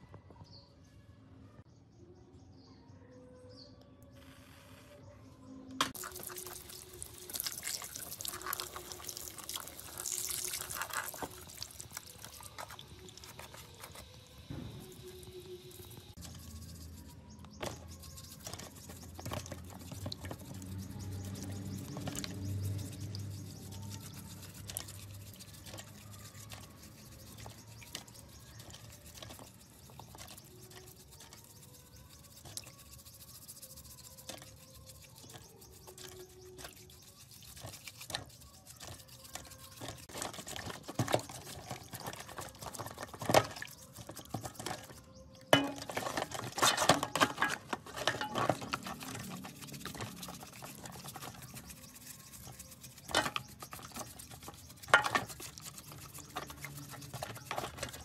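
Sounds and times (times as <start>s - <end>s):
brush scrubbing plastic: 5.9s - 58.0s
water splashing and dripping: 6.0s - 17.0s, 34.1s - 58.0s.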